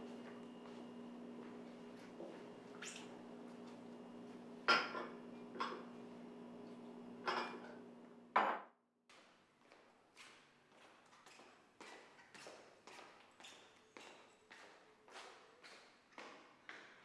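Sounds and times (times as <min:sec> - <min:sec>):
crockery clinking and clattering: 0:07.2 - 0:07.7.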